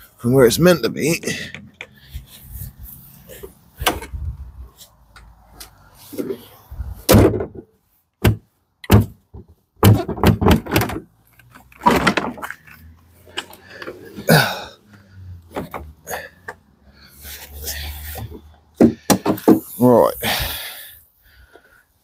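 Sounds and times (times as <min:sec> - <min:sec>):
plastic bumper knocking: 0:08.2 - 0:11.0, 0:18.8 - 0:19.6.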